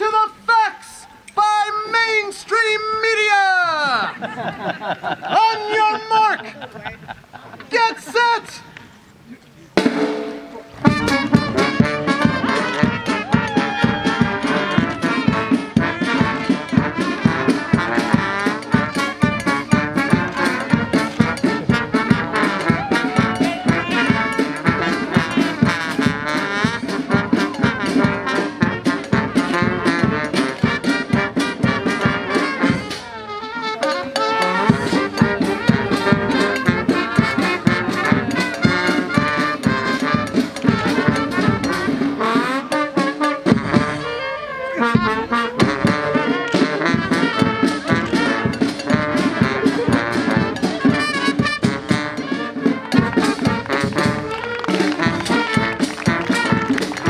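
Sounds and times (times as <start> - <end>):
fast steady drum beat: 9.8 - 44.2, 44.8 - 57.0
brass band music: 9.8 - 57.0.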